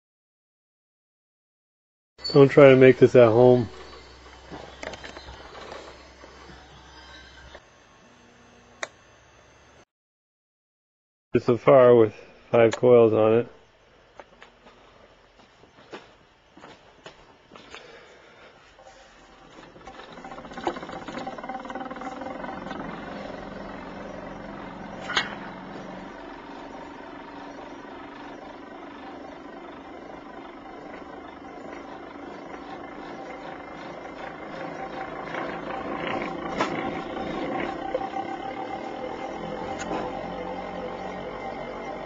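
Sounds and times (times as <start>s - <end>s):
pulse motor humming whir: 2.3s - 9.8s, 18.8s - 42.0s.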